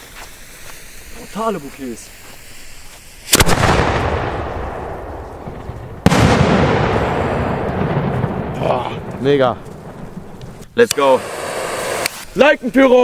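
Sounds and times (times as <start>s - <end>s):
firework shells bursting: 0.3s - 12.4s
rolling echo: 3.4s - 10.7s.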